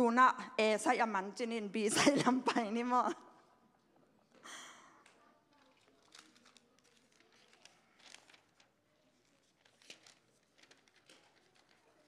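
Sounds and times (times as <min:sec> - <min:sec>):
pages being turned: 0:05.6 - 0:12.0.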